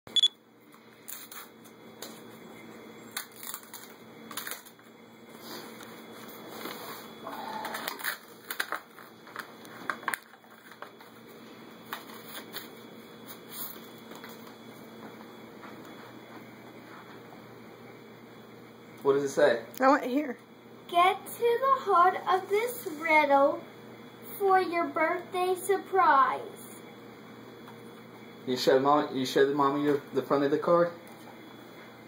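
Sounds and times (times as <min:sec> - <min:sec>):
paper envelope crinkling: 0:03.1 - 0:04.9, 0:05.8 - 0:14.5.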